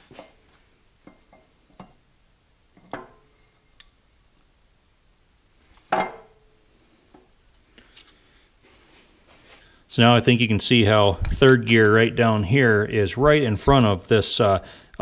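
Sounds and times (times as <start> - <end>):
loud ringing metal clank: 6.0 - 6.6.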